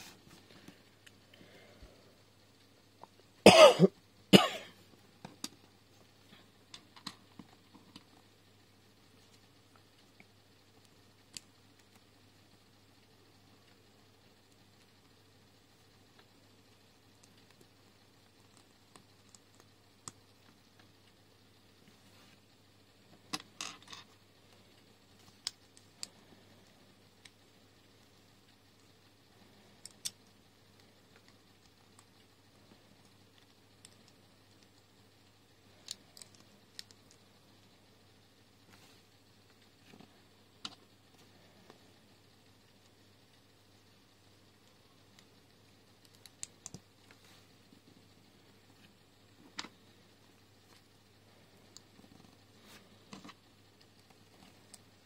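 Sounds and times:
person coughing: 0:03.4 - 0:04.8.

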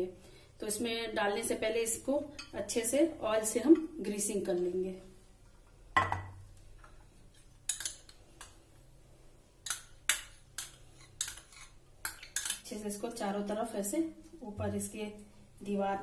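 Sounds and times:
glass dish knocking on counter: 0:06.0 - 0:06.4.

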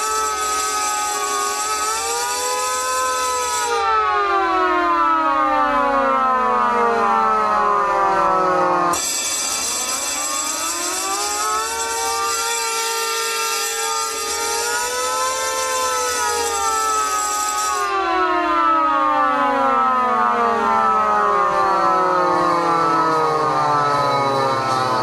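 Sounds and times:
electric alarm bells ringing: 0:00.0 - 0:04.0, 0:08.4 - 0:18.0
siren winding down: 0:00.0 - 0:25.0.

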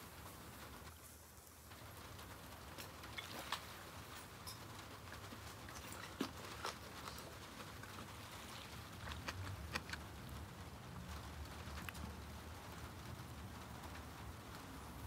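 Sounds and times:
faint sizzle: 0:00.0 - 0:09.0.

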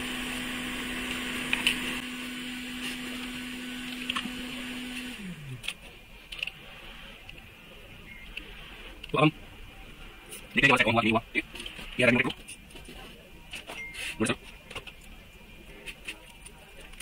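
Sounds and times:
electric blower motor humming: 0:00.0 - 0:05.7.

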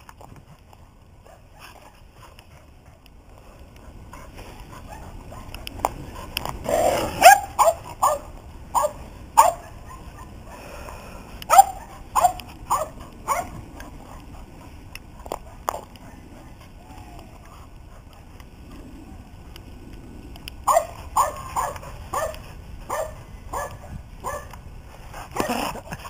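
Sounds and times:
dog barking: 0:07.1 - 0:10.4, 0:11.5 - 0:14.2, 0:20.7 - 0:24.5.

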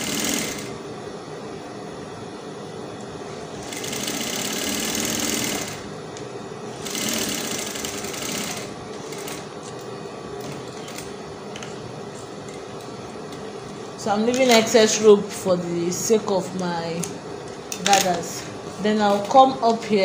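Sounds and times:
sewing machine stitching: 0:00.0 - 0:00.7, 0:03.6 - 0:05.8, 0:06.8 - 0:09.4.

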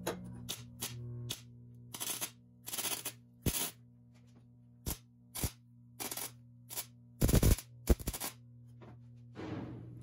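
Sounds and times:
welder arc crackling: 0:00.5 - 0:03.8, 0:04.8 - 0:08.4.

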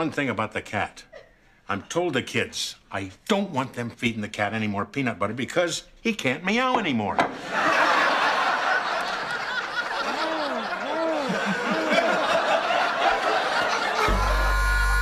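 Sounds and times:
studio audience laughing: 0:07.3 - 0:14.8.

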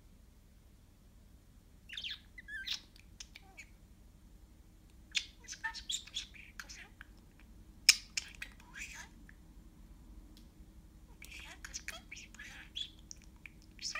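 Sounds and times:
budgerigar squawks and chirps: 0:01.9 - 0:03.7, 0:05.1 - 0:07.0, 0:11.2 - 0:13.1.

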